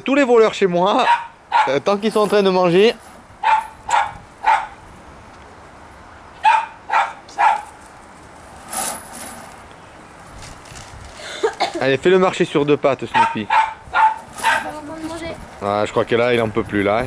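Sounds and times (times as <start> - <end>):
small dogs yapping: 1.0 - 1.8, 3.4 - 4.8, 6.4 - 7.8, 13.1 - 14.8.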